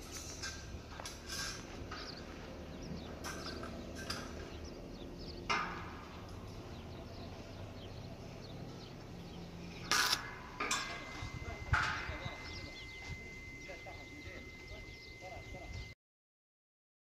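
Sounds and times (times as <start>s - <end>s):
low steady hum: 0.0s - 16.0s
small birds chirping: 0.1s - 16.0s.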